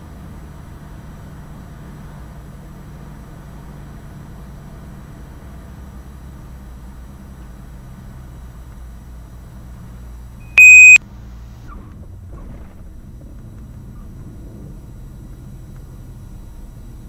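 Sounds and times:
loud electronic beep: 10.6 - 11.0.

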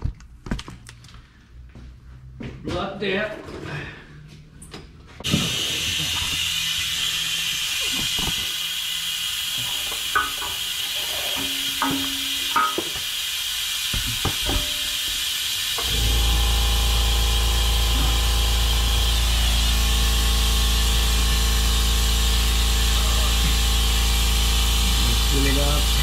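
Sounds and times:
steady hiss: 5.6 - 15.9
low hum: 15.8 - 26.0.

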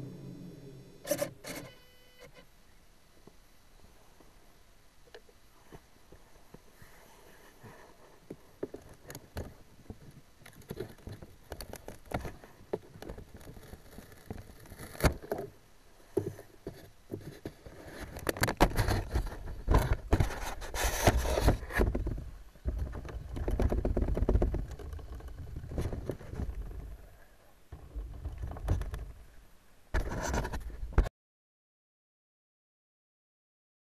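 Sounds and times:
scraping knocks and rumbles: 18.5 - 27.0.

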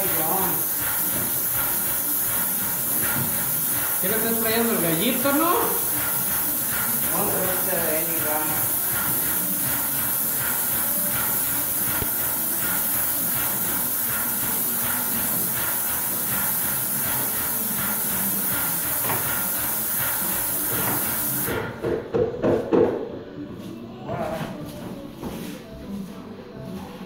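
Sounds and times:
spray gun hissing: 0.0 - 21.6.

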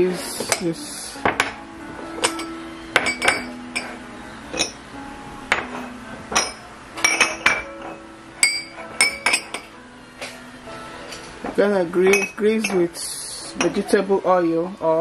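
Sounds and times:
kitchenware clinking: 2.2 - 4.8, 5.5 - 10.4, 11.0 - 13.0, 13.6 - 14.0.

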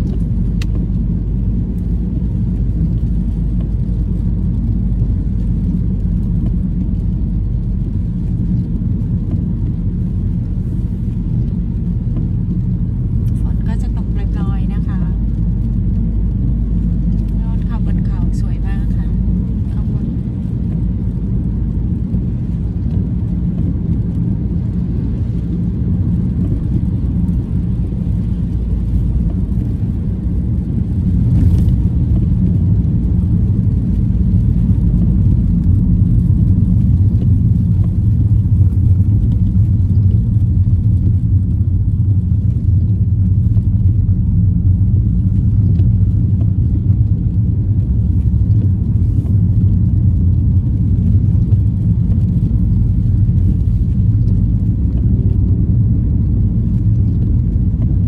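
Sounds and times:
car driving on wet road: 0.0 - 58.0.

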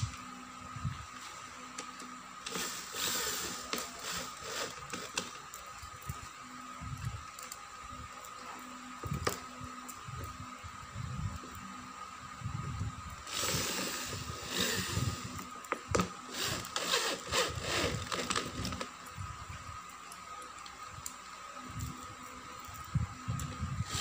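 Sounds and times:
power drill driving screws: 2.4 - 5.4, 13.3 - 15.4, 16.3 - 18.9.

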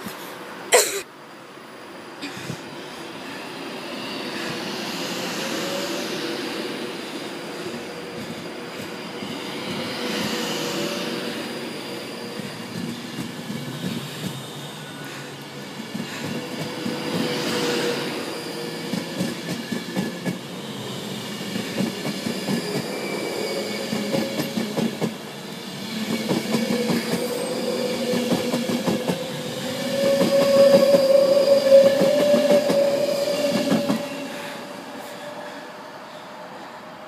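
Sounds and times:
electric train whine: 0.0 - 37.0
train wheels clicking on rail joints: 7.1 - 35.2.

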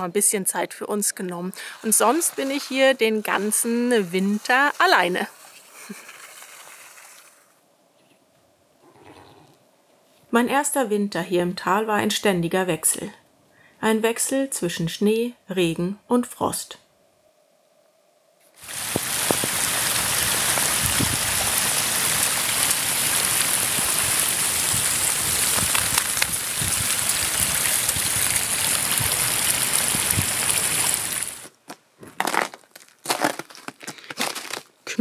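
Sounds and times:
rain hissing on frozen ground: 1.5 - 7.6, 18.5 - 31.6
footsteps crunching on icy snow: 18.6 - 35.0.

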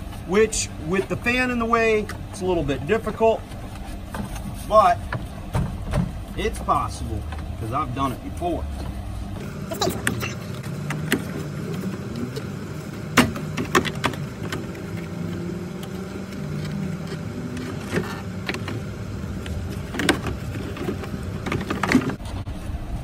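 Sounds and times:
hard plastic clicks and knocks: 13.1 - 15.1, 19.4 - 22.2.

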